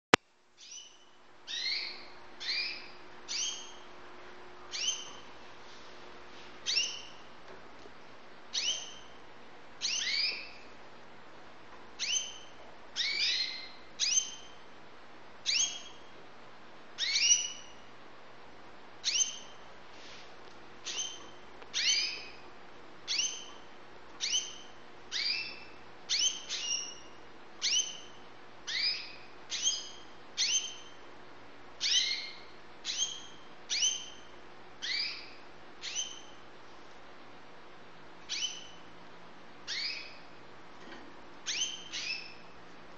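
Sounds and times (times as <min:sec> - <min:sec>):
canaries chirping: 0:00.6 - 0:04.0, 0:04.6 - 0:05.4, 0:06.6 - 0:07.4, 0:08.5 - 0:10.8, 0:11.9 - 0:14.8, 0:15.4 - 0:16.2, 0:17.0 - 0:17.9, 0:19.0 - 0:20.2, 0:20.8 - 0:31.1, 0:31.8 - 0:36.4, 0:38.2 - 0:39.0, 0:39.6 - 0:42.6.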